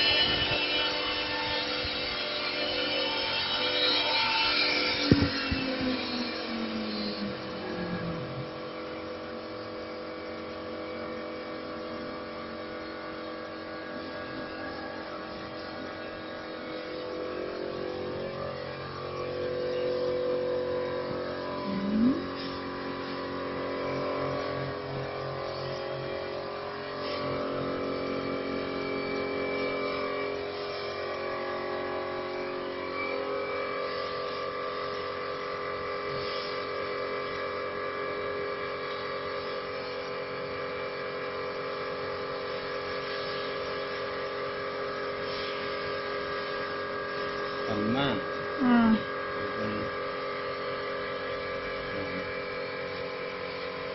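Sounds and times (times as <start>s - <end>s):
cnc lathe motors humming: 0.0s - 36.1s.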